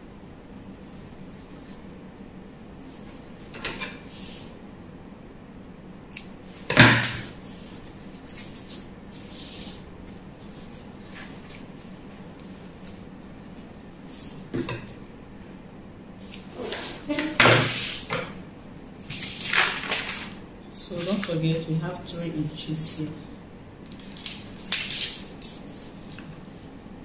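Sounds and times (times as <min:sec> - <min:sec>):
fabric and paper rustling: 0:07.6 - 0:14.3, 0:19.0 - 0:21.6, 0:23.9 - 0:26.7.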